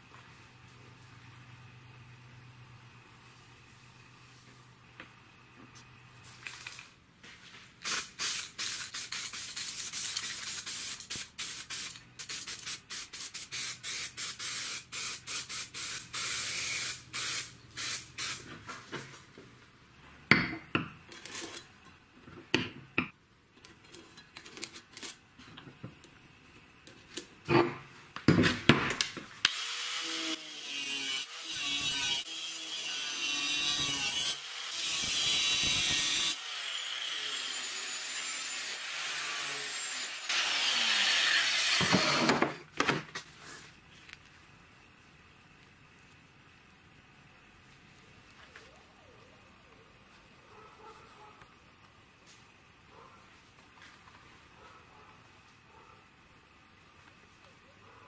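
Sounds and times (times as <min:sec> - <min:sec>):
spray can hissing: 0:07.8 - 0:18.4
angle grinder on steel: 0:29.5 - 0:42.4.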